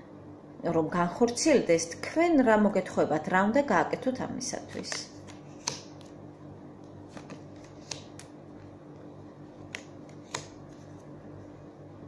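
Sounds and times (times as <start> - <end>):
cards clicking and snapping: 4.7 - 6.2, 7.1 - 8.3, 9.6 - 10.8.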